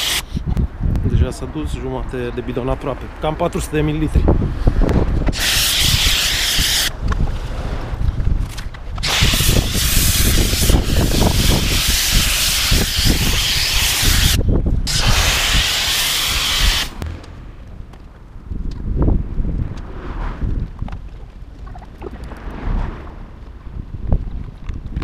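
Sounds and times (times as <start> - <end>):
pressure washer spraying foam: 0.0 - 0.3, 5.3 - 6.9, 9.0 - 17.0
wind rumble on microphone: 0.2 - 25.0.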